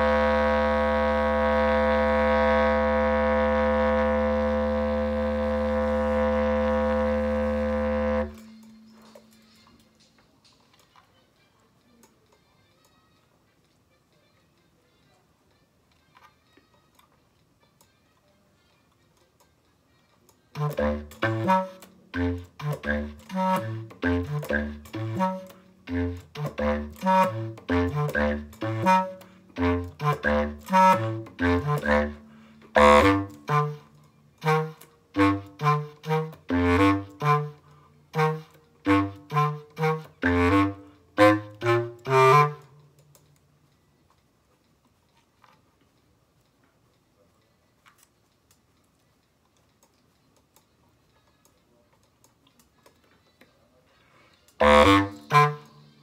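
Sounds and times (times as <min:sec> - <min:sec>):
bass clarinet playing: 0:00.0 - 0:09.2, 0:20.5 - 0:42.8, 0:54.6 - 0:55.9.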